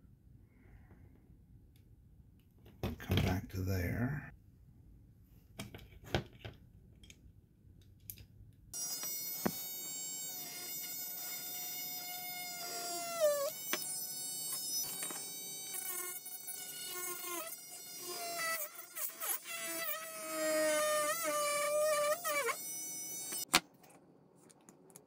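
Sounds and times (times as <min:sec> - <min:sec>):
rotary tool motor whining: 0:08.8 - 0:23.5.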